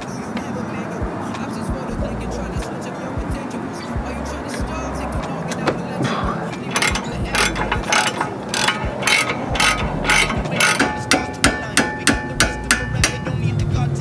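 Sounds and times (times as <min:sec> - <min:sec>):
socket ratchet clicking: 0:06.6 - 0:13.4.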